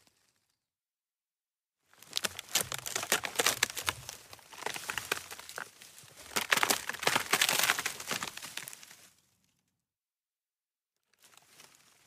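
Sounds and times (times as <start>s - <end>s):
twigs snapping and crackling: 2.0s - 9.1s.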